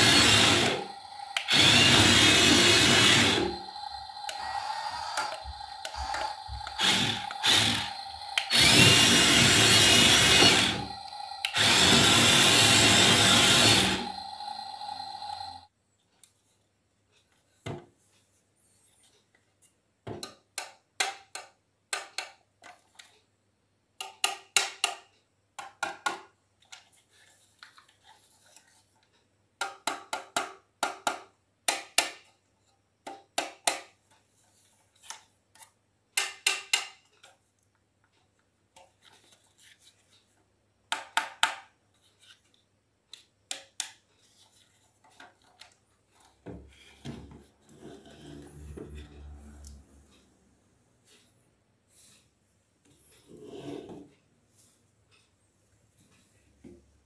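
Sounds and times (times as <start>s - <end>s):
toy truck parts clicking: 0.1s - 15.6s.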